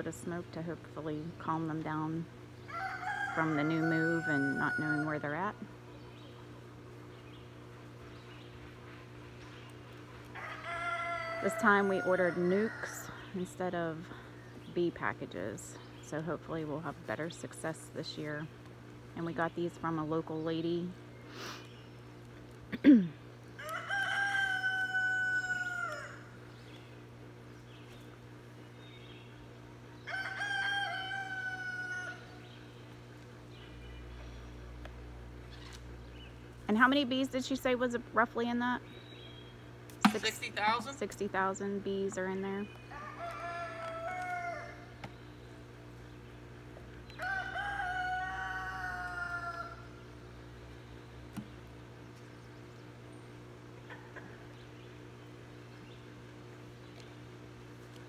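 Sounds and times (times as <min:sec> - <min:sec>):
rooster crowing: 0:02.7 - 0:05.4, 0:10.4 - 0:13.2, 0:23.6 - 0:26.4, 0:30.0 - 0:32.4, 0:42.9 - 0:45.0, 0:47.2 - 0:50.0.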